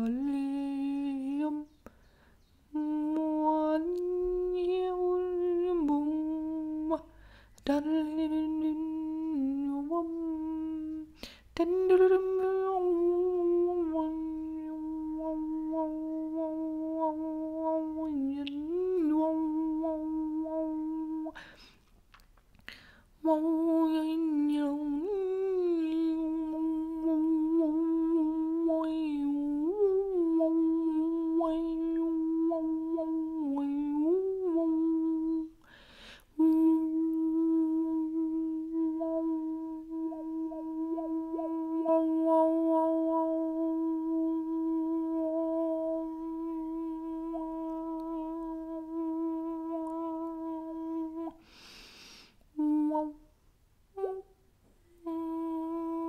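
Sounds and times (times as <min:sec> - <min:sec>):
woman humming a sustained note: 0:00.0 - 0:02.0, 0:02.7 - 0:21.6, 0:23.2 - 0:35.8, 0:36.4 - 0:51.8, 0:52.5 - 0:56.0
woman breathing: 0:01.8 - 0:02.5, 0:07.1 - 0:07.6, 0:11.1 - 0:11.6, 0:21.3 - 0:21.9, 0:22.6 - 0:23.2, 0:35.6 - 0:36.4, 0:51.4 - 0:52.5.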